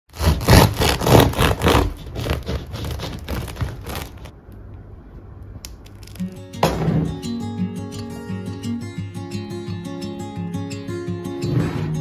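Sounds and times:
knife sawing through bread crust: 0.1 - 4.3.

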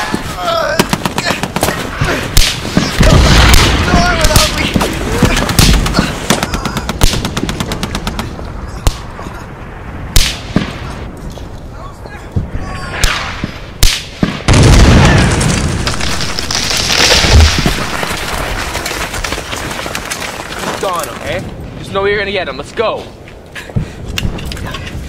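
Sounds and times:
loud blast: 2.3 - 4.6.

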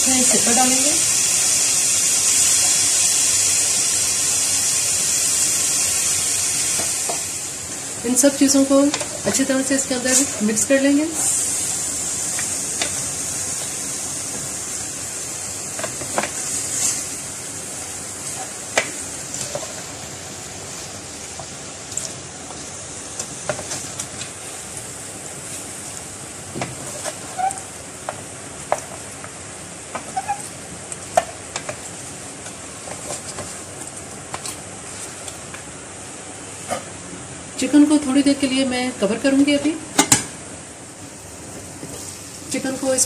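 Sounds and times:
steady high hiss: 0.0 - 43.0.

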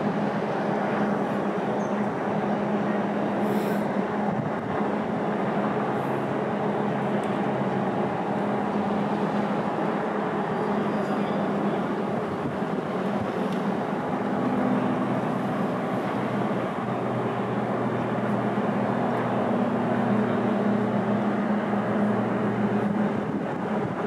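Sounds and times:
brief hiss: 3.4 - 3.9.

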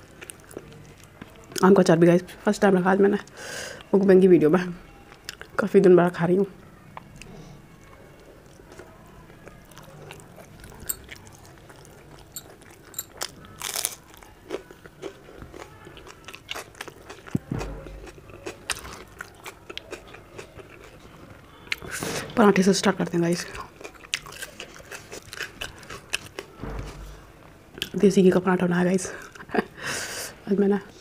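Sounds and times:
person chewing: 0.1 - 1.7, 7.0 - 22.0, 23.6 - 26.5
onion crunch: 8.5 - 21.0.

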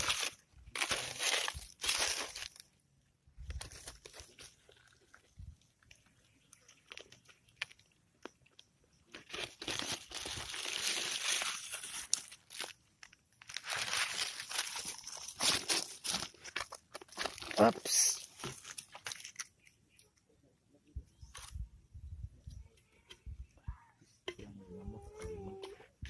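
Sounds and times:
palm leaf rustling and crackling: 0.0 - 2.7, 3.5 - 19.8.

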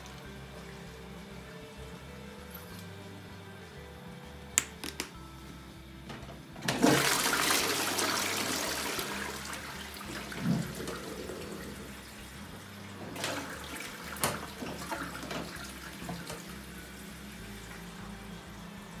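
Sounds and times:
toilet water rushing: 6.6 - 19.0
water gurgles: 6.8 - 17.8.

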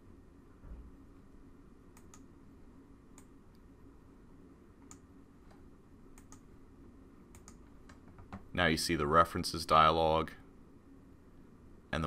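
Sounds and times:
quiet room hum: 0.0 - 12.0
computer mouse clicks: 1.9 - 2.3, 3.1 - 3.6, 4.8 - 6.5, 7.3 - 8.4.

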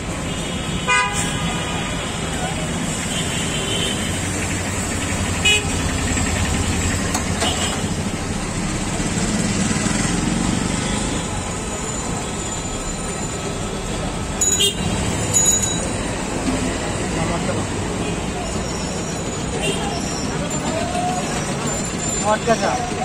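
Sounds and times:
street traffic noise: 0.0 - 23.0
car horns: 0.3 - 2.0, 5.4 - 5.9, 7.4 - 8.0, 14.4 - 16.0, 18.0 - 20.3.

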